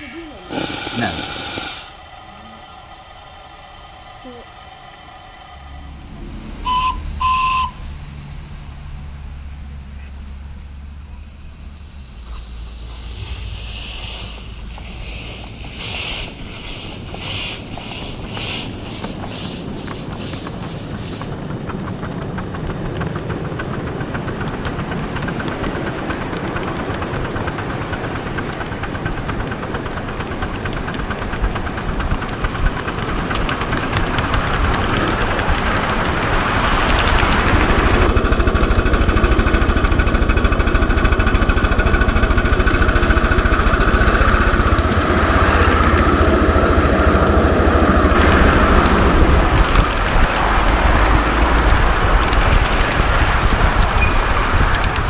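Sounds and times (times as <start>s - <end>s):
steam locomotive puffing: 0.0s - 8.5s, 10.8s - 21.4s, 30.5s - 54.6s
wheels rattling on rails: 0.0s - 55.0s.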